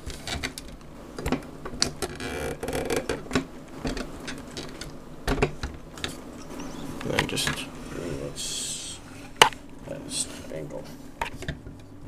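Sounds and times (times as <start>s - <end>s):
scraping rustle: 0.0s - 11.9s.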